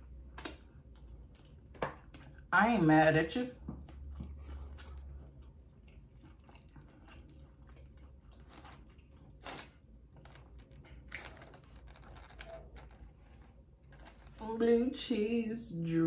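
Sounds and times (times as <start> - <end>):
chewing with wet mouth clicks: 0.0 - 2.5, 3.8 - 14.2.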